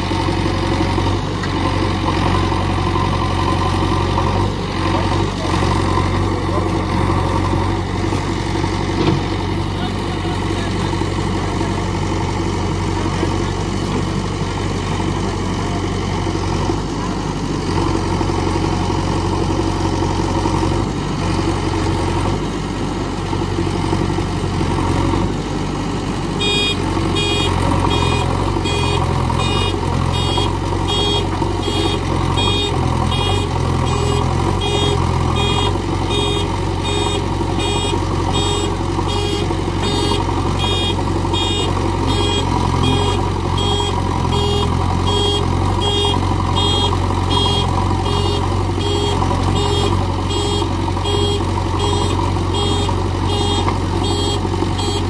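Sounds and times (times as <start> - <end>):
diesel engine running under load: 0.0 - 55.0
reversing alarm beeping: 26.4 - 55.0.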